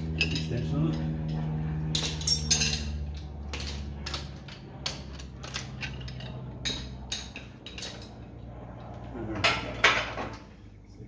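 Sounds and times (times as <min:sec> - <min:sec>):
steady low hum: 0:00.0 - 0:11.0
hand tools clinking: 0:00.1 - 0:08.1.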